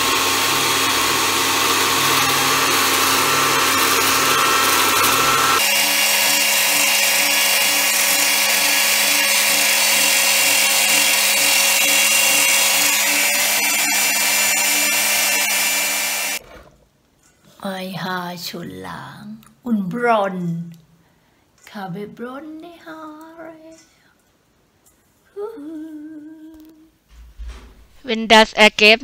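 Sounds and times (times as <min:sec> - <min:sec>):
pasta machine motor running: 0:00.0 - 0:16.7.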